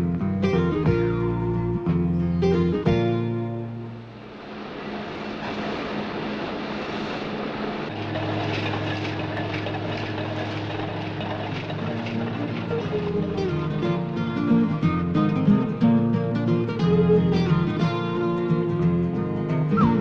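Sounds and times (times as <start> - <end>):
hissing mechanical rush: 4.0 - 13.9.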